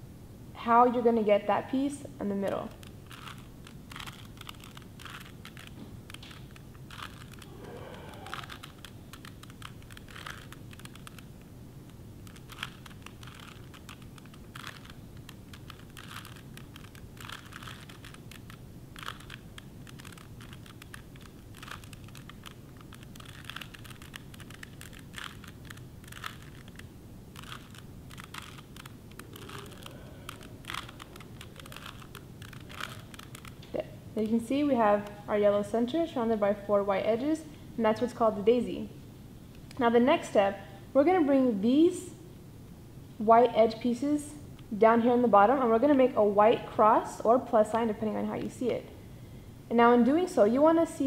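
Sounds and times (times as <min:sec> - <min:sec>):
puzzle cube twisting clicks: 0:02.4 - 0:35.2.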